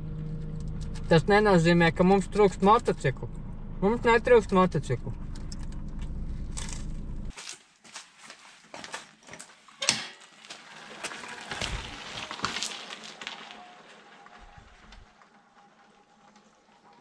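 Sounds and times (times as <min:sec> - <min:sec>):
low rumble inside car: 0:00.0 - 0:07.3
footsteps on concrete: 0:07.3 - 0:09.6, 0:10.2 - 0:13.5
dirt bike pushed rattling: 0:08.8 - 0:15.1.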